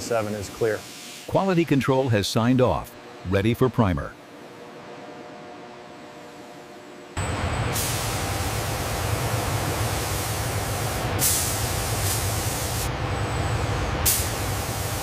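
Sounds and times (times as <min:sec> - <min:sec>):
spray guns hissing: 0:07.8 - 0:12.9, 0:14.0 - 0:15.0.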